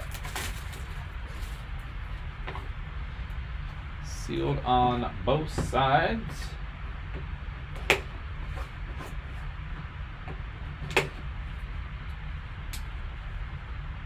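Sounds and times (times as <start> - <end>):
handling noise: 0.0 - 2.8
steady low hum: 0.0 - 14.0.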